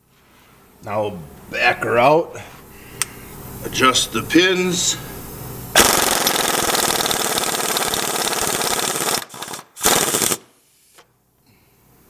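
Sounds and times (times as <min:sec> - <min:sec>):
pneumatic impact wrench rattling: 0:05.8 - 0:11.0.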